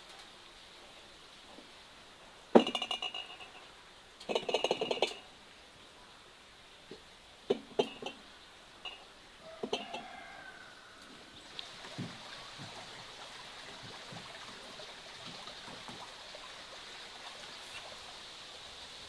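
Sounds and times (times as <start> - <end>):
glass jars and metal pails clinking: 2.6 - 5.3, 7.5 - 8.2, 8.8 - 10.2.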